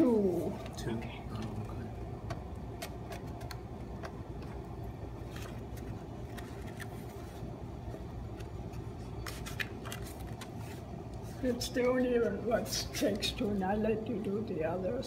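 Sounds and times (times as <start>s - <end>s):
low room hum: 0.0s - 15.0s
paper handling: 2.7s - 13.6s.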